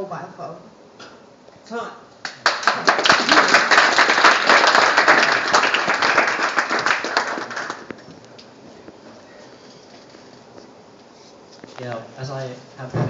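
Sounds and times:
audience applauding: 2.2s - 8.0s.

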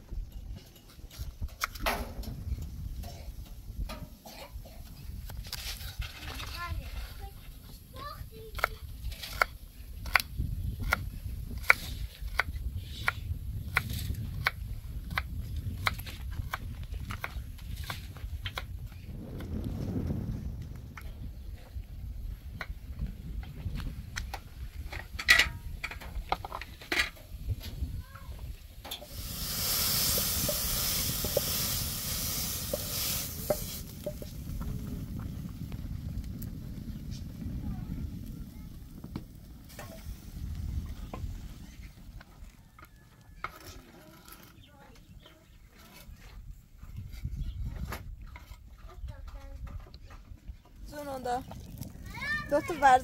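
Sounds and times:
low rumble: 18.3s - 24.9s, 29.1s - 42.0s
loud sizzling hiss: 28.8s - 41.6s
wooden spatula scraping pan: 29.0s - 34.3s.

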